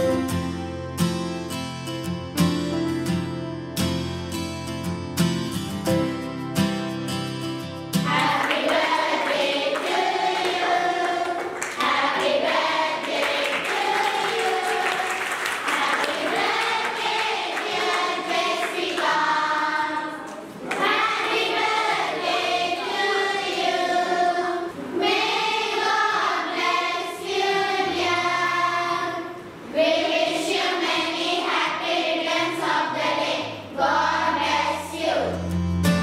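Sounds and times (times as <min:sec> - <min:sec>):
group singing together: 0:08.0 - 0:35.5.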